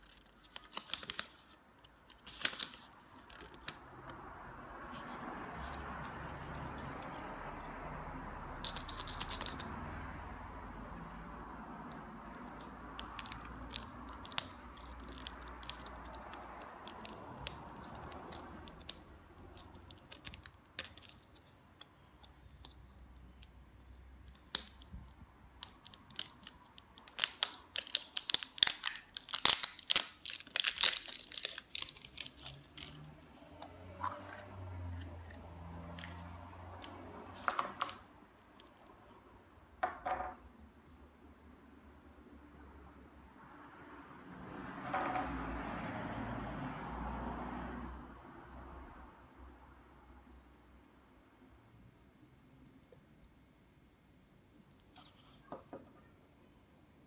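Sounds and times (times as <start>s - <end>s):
plastic wrap crinkling and tearing: 0.0s - 3.6s, 25.6s - 33.1s.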